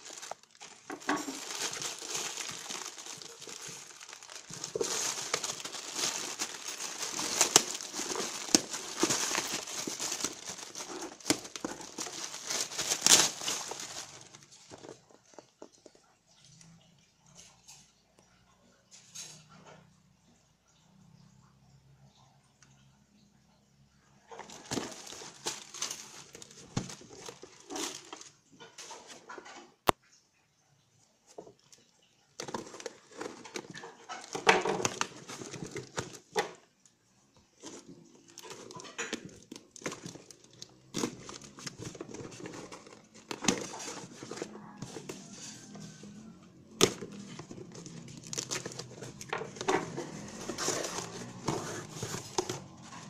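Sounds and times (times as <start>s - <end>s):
packing tape tearing: 0.0s - 14.4s
cardboard handled: 0.0s - 15.5s, 24.4s - 28.2s, 39.8s - 45.6s, 46.8s - 53.0s
plastic bag crinkling: 0.0s - 15.9s, 24.3s - 29.2s, 31.3s - 36.6s, 37.6s - 53.0s.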